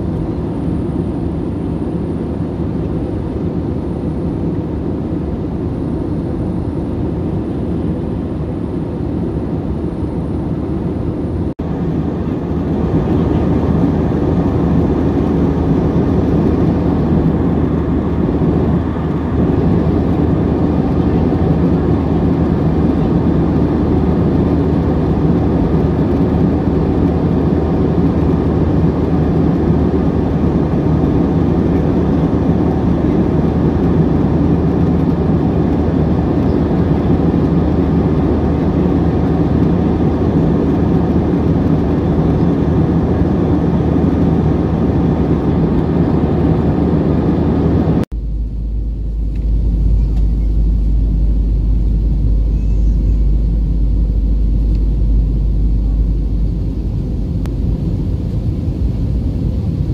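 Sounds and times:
jet airliner cabin noise: 0.0s - 59.9s.

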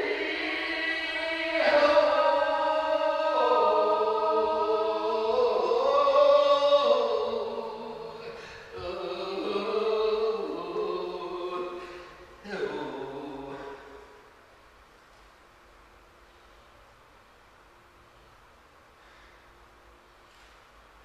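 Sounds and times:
wordless drone singing: 0.0s - 14.2s.

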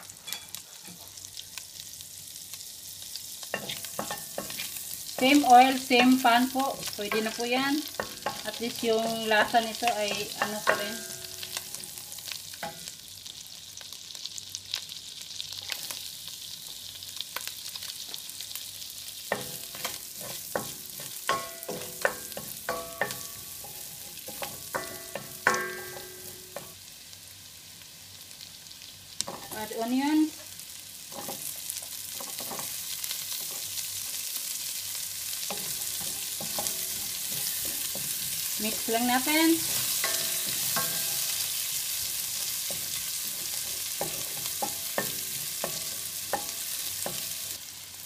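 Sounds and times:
garlic sizzling in a pan: 0.0s - 48.0s
wooden spoon knocking on pan: 7.1s - 11.1s, 24.4s - 26.7s.

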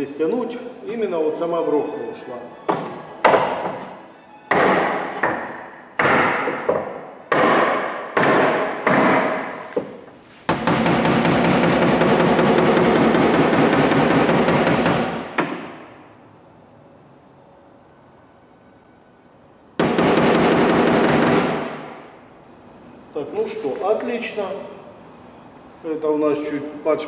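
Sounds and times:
hammer striking metal panel: 4.5s - 9.6s, 10.5s - 15.8s, 19.8s - 21.9s
rapid hammer tapping: 10.5s - 15.6s.

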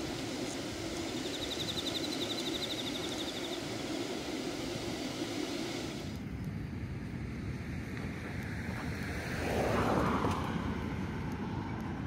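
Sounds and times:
hiss: 0.0s - 6.3s
rapid high chirping trill: 0.9s - 3.7s.

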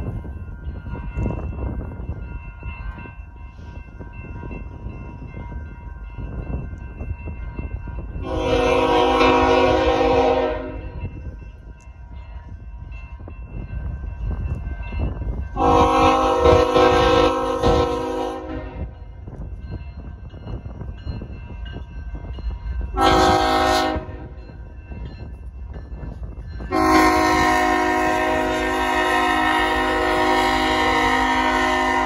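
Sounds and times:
crossing signal bells ringing: 0.0s - 32.0s
train air horn blasts: 8.2s - 11.0s, 15.6s - 18.9s, 23.0s - 24.3s, 26.7s - 32.0s.

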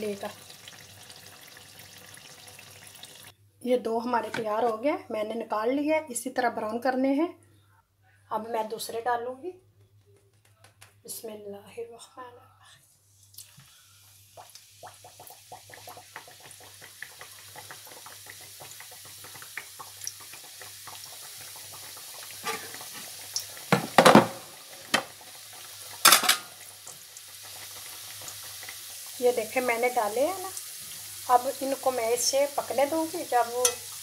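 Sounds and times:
pastries sizzling in hot oil: 0.0s - 3.3s, 13.7s - 34.0s
metal spatula scraping a pan: 22.4s - 23.2s.

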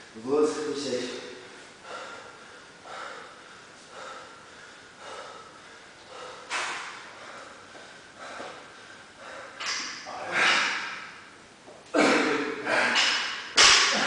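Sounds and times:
person breathing heavily: 1.6s - 11.1s.

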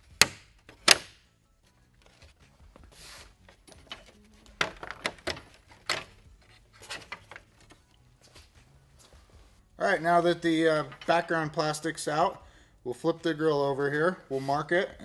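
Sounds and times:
plastic clicks and knocks: 4.6s - 6.1s.

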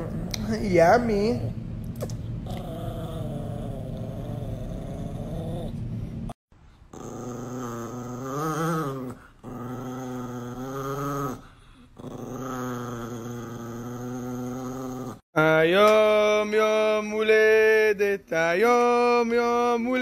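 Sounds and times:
small dog growling: 2.4s - 6.2s, 6.9s - 15.2s.

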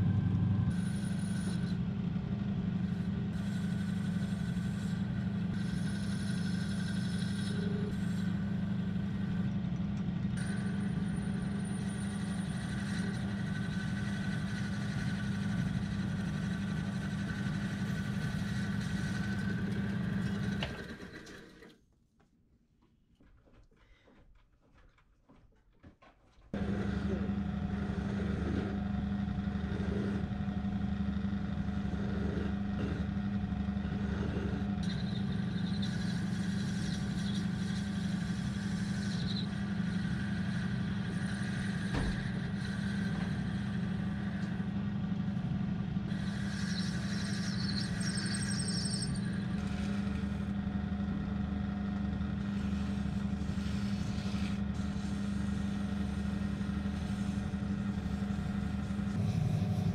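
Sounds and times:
lathe motor hum: 0.0s - 21.7s, 26.5s - 59.9s
lathe tool scraping metal: 2.9s - 8.6s, 10.4s - 21.0s, 34.0s - 45.0s, 46.1s - 50.5s.

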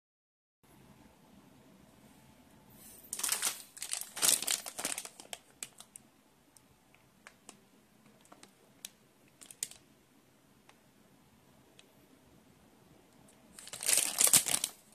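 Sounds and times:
plastic bag crinkling: 3.1s - 6.0s, 8.2s - 9.8s, 13.5s - 14.9s.

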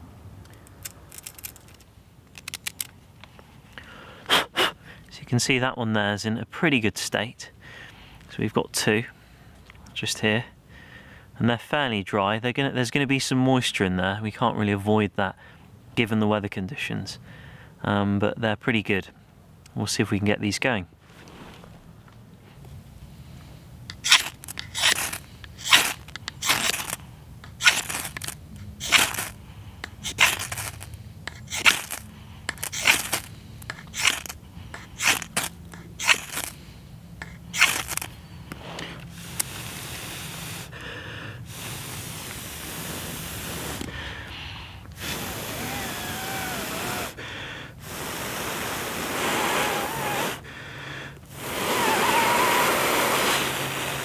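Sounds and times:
person blowing breaths: 3.8s - 5.1s, 23.0s - 54.0s
knife scraping ferro rod: 23.9s - 36.6s, 37.2s - 38.1s.

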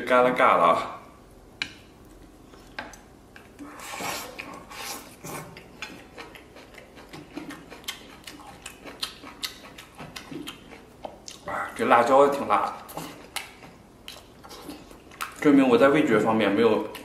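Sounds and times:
chewing: 2.5s - 11.8s, 12.6s - 15.4s.

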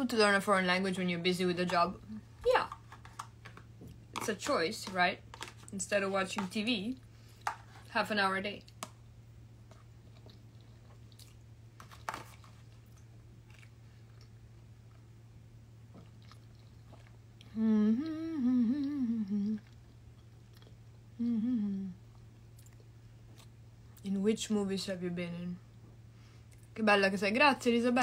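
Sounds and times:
woman chewing: 9.7s - 15.0s, 15.9s - 18.1s
woman humming mouth closed: 17.4s - 19.8s, 21.1s - 22.1s.

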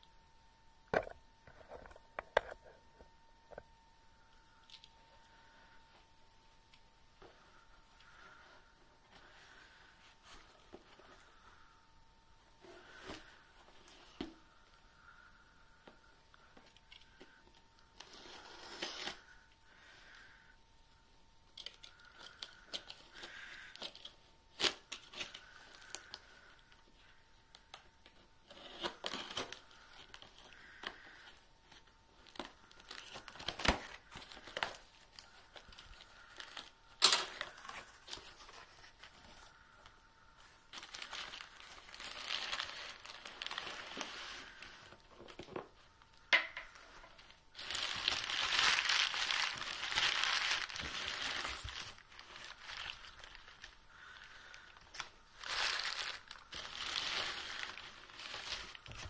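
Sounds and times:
newspaper crumpling and rustling: 21.6s - 26.5s, 28.4s - 39.8s, 40.4s - 45.8s, 46.7s - 59.0s.

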